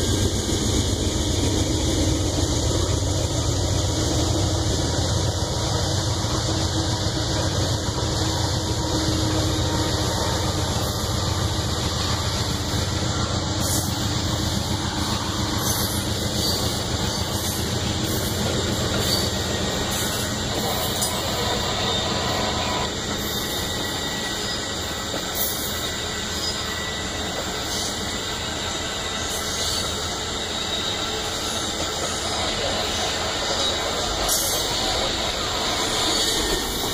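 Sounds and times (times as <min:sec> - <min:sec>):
train wheels rolling on rails: 0:00.0 - 0:36.9
wheels clicking over rail joints: 0:13.6 - 0:22.0.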